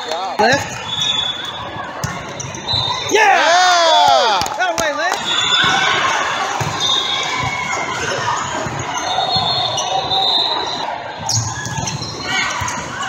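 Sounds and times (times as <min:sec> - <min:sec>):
crowd chatter in a hall: 0:00.0 - 0:13.0.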